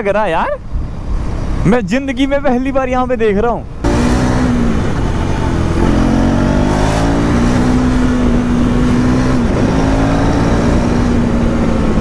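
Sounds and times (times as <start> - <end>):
motorcycle engine running: 3.8 - 12.0.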